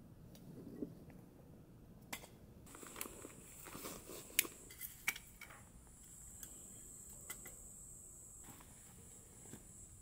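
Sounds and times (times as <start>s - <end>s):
high-pitched hiss: 2.7s - 10.0s.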